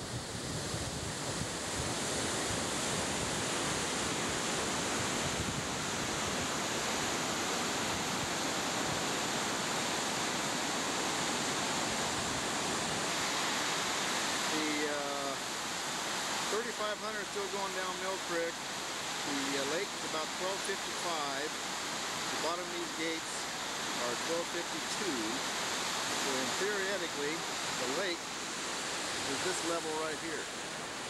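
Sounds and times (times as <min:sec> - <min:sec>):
wind on microphone: 0:00.0 - 0:06.8
turbulent water rushing: 0:00.0 - 0:31.0.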